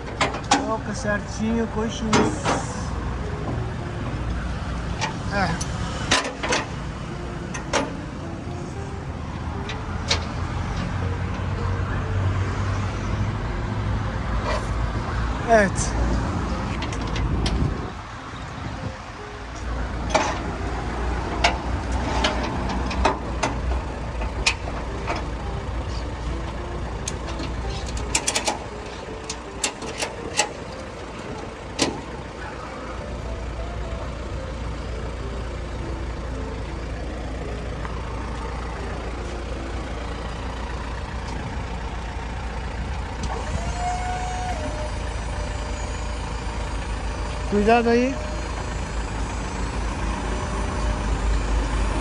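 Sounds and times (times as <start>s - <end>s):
metallic clanks and rattles: 0.0s - 1.2s, 4.9s - 8.6s, 9.5s - 11.5s, 16.5s - 18.0s, 19.5s - 32.6s
truck engine idling: 0.0s - 52.0s
hydraulic bed hum: 16.2s - 52.0s.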